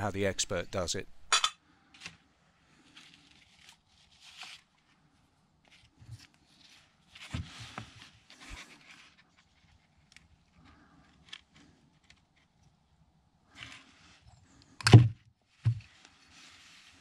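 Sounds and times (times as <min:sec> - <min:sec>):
rustling: 0:02.7 - 0:12.5, 0:15.5 - 0:17.0.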